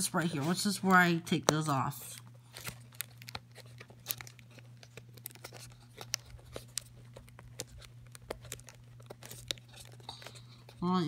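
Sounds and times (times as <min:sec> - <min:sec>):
steady low hum: 0:00.0 - 0:11.0
tape peeling off cardboard: 0:02.4 - 0:10.3.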